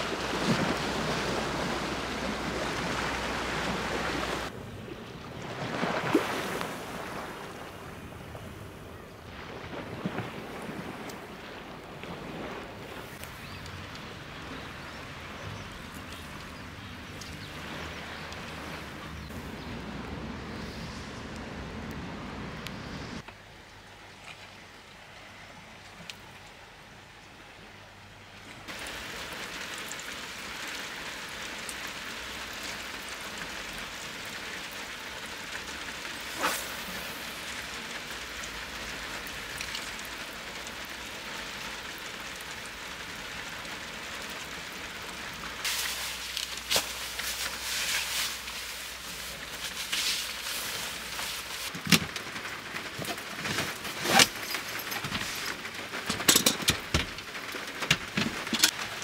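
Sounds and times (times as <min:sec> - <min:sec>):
light rain hissing: 0:10.4 - 0:23.9, 0:28.7 - 0:59.0
clicks and knocks of handling: 0:51.7 - 0:58.8.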